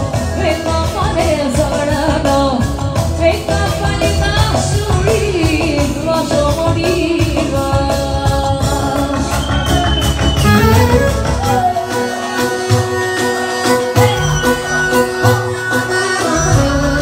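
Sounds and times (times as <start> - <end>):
drum and bass beat: 0.0 - 17.0
person singing: 0.0 - 17.0
clarinet melody: 9.7 - 17.0.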